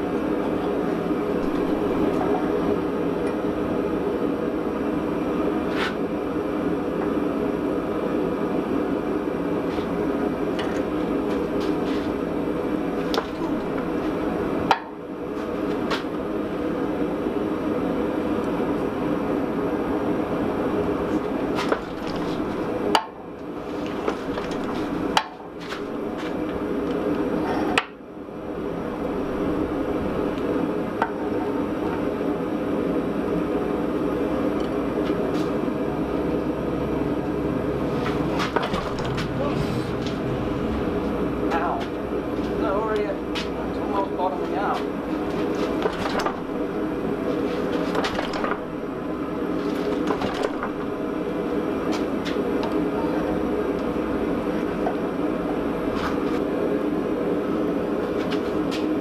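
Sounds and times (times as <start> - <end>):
hydraulic press running: 1.2 - 3.5, 12.8 - 14.8, 21.6 - 23.1, 23.8 - 26.8, 37.8 - 42.6, 45.7 - 47.2.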